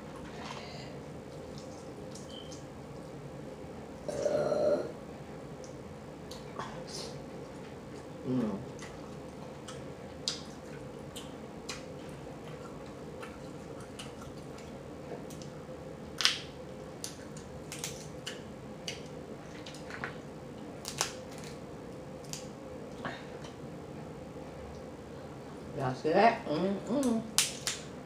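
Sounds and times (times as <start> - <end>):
faint steady hum: 0.0 - 28.0
shellfish shells cracking by hand: 16.2 - 19.1, 20.8 - 21.6, 22.2 - 22.5, 27.4 - 27.9.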